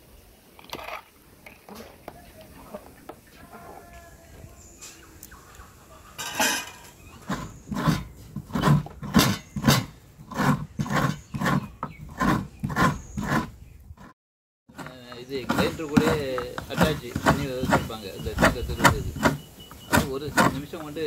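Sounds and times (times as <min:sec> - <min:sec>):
coconut rasping on metal scraper: 0:07.1 - 0:21.0.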